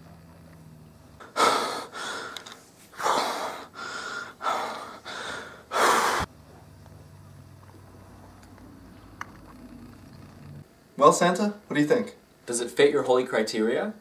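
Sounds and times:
hoarse gasping breaths: 0:01.2 - 0:06.3.

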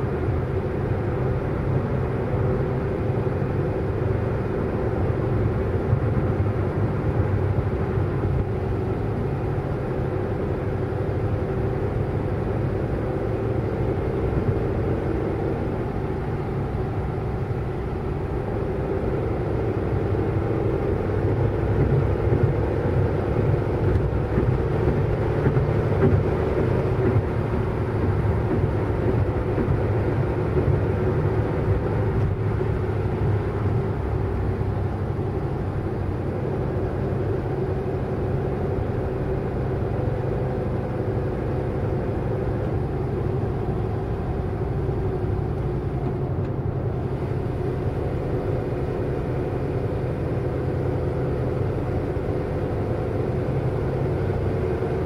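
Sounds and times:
road traffic noise: 0:00.0 - 0:55.0.

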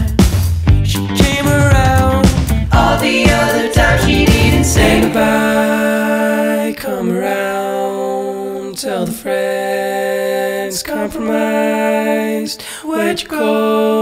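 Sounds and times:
person singing long notes: 0:02.8 - 0:06.8.

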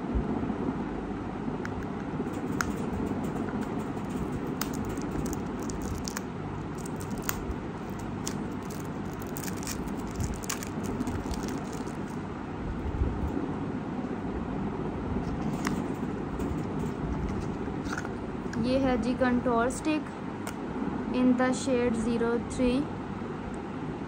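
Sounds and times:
low background hum: 0:00.0 - 0:24.0
plastic wrap crackling: 0:03.9 - 0:12.3.

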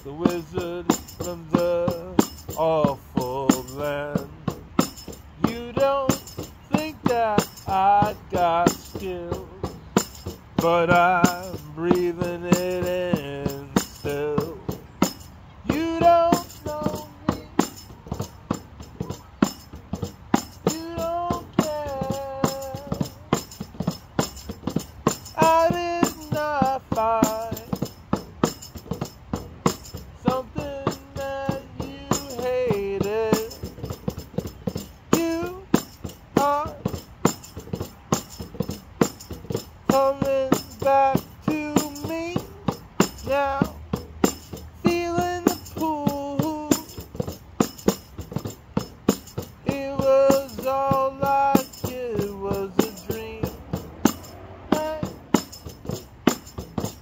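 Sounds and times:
person singing: 0:00.0 - 0:04.5, 0:05.4 - 0:09.7, 0:10.6 - 0:14.7, 0:15.6 - 0:18.2, 0:20.6 - 0:23.4, 0:25.4 - 0:27.8, 0:30.2 - 0:33.7, 0:35.0 - 0:37.0, 0:39.9 - 0:43.8, 0:44.8 - 0:47.0, 0:49.6 - 0:53.7, 0:54.7 - 0:55.5
steady percussion beat: 0:00.0 - 0:57.0.

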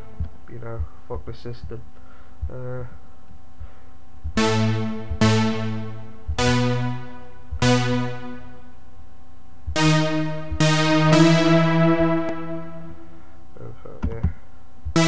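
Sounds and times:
bright synth lead notes: 0:04.4 - 0:08.8, 0:09.8 - 0:13.3.

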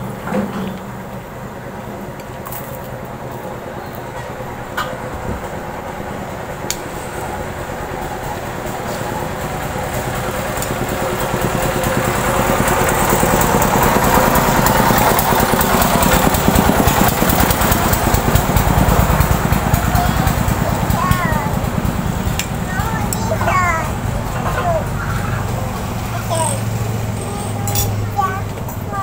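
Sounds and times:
engine running with low pulse: 0:00.0 - 0:29.0.

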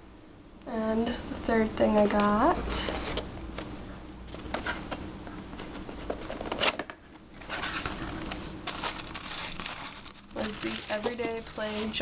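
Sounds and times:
rustling: 0:07.4 - 0:12.0.

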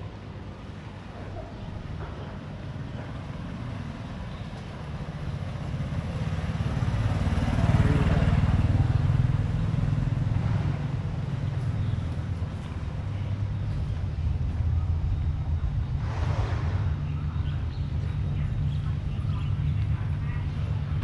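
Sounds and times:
motorbike engine passing by: 0:02.8 - 0:13.9, 0:15.8 - 0:21.0.

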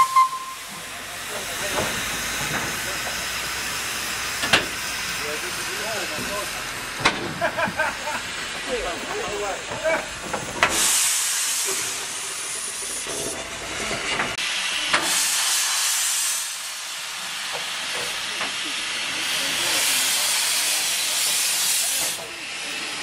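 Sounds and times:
steam locomotives hissing: 0:00.0 - 0:23.0.

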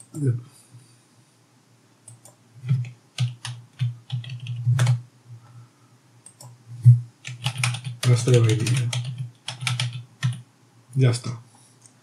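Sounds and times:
computer keyboard typing: 0:02.1 - 0:05.0, 0:07.2 - 0:10.4.

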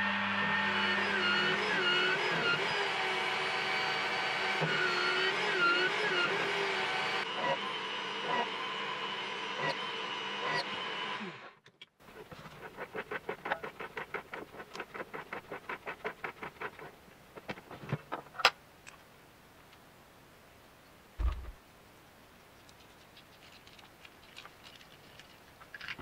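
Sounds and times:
drill press motor winding down: 0:00.0 - 0:11.6.

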